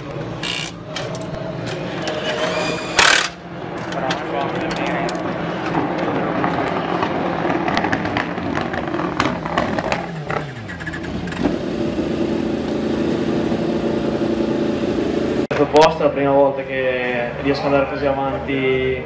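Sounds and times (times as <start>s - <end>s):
engine running steadily: 3.0s - 15.9s.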